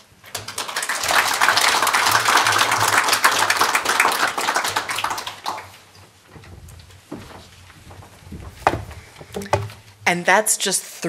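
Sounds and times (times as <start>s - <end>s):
audience applauding: 0.3s - 5.9s.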